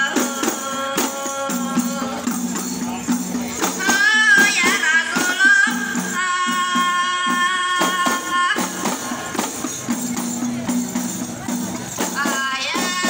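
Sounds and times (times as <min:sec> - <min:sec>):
people singing: 0:00.0 - 0:09.5, 0:12.0 - 0:13.0
frame drums beaten in rhythm: 0:00.0 - 0:13.0.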